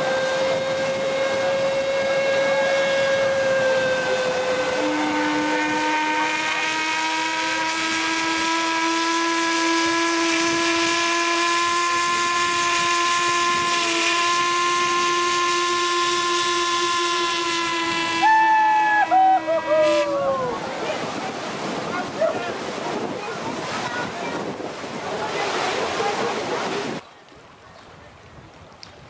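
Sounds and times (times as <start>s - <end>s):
steam whistles blowing: 0.0s - 20.6s.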